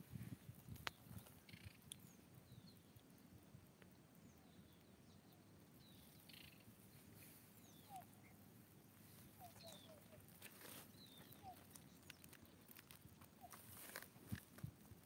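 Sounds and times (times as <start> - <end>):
faint high chirps: 4.2 - 14.1.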